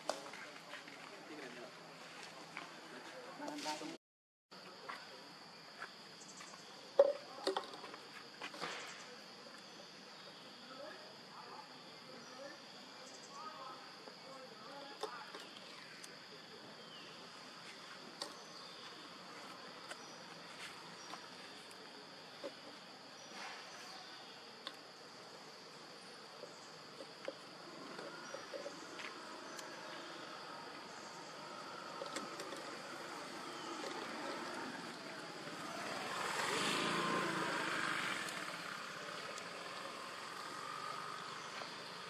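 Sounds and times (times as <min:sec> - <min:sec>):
insects droning: 0:00.0 - 0:42.0
motor vehicle passing by: 0:27.6 - 0:42.0.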